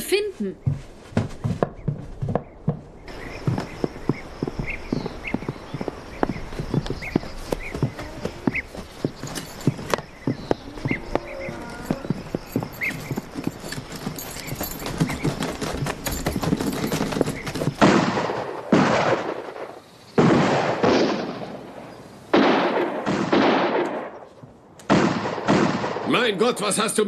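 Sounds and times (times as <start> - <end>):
horse hooves clip-clopping: 0.5 - 19.2
gunshots with echoing tail: 17.8 - 26.2.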